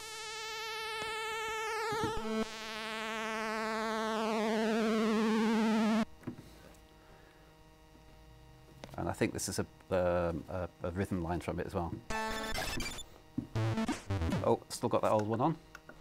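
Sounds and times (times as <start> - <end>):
buzzy synthesiser notes: 0.0 - 6.1, 12.1 - 14.7
faint hum: 0.0 - 16.0.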